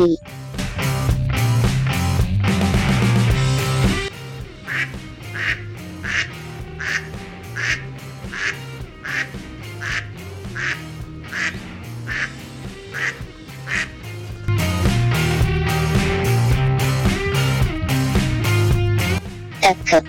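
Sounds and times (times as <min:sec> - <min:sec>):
soft background music: 0:04.1 - 0:14.6
duck quacking: 0:04.6 - 0:14.1.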